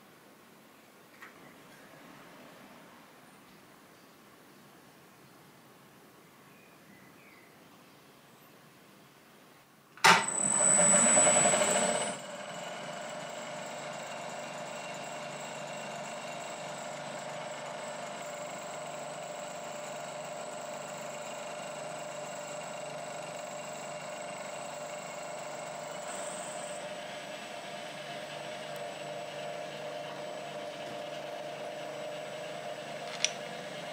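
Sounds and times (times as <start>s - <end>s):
milling machine whining: 10.0s - 33.9s.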